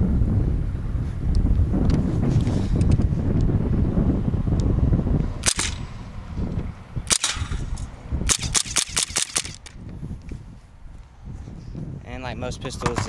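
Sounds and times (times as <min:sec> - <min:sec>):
wind rumbling on microphone: 0:00.0 - 0:13.0
air pistol firing sharp pops: 0:05.4 - 0:05.8, 0:07.1 - 0:09.7.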